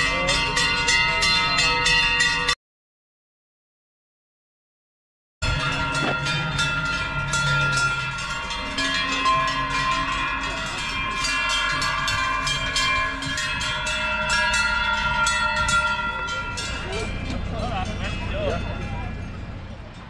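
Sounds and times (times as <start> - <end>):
cowbells clanging: 0.0 - 2.6, 5.4 - 20.0.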